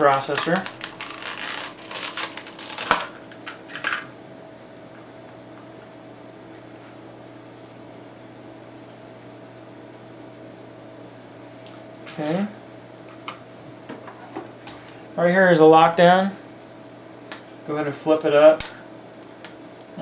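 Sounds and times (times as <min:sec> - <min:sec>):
plastic packaging crackling: 0:00.0 - 0:03.4
steady low hum: 0:00.0 - 0:20.0.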